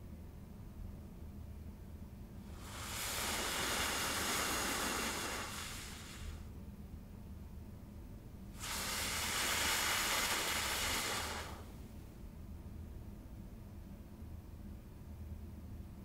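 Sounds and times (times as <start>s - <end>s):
breaths blown through pursed lips: 2.5s - 6.4s, 8.6s - 11.8s.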